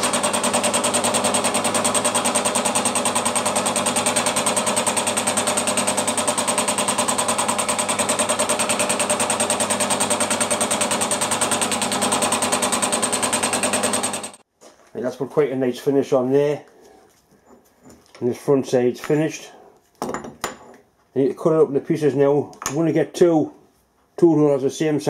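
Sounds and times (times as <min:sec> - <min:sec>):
milling machine cutting: 0:00.0 - 0:14.4.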